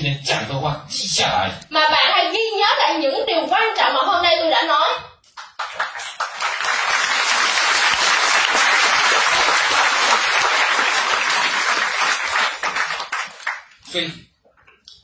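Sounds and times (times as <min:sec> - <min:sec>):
audience applauding: 0:05.3 - 0:13.9.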